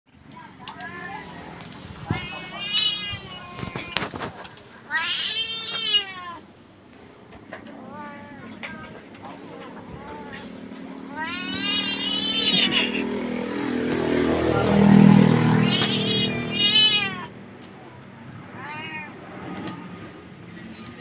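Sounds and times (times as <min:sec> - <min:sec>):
cat meowing: 0:02.0 - 0:04.1, 0:04.9 - 0:06.5, 0:11.1 - 0:13.2, 0:14.8 - 0:17.4, 0:18.5 - 0:19.2.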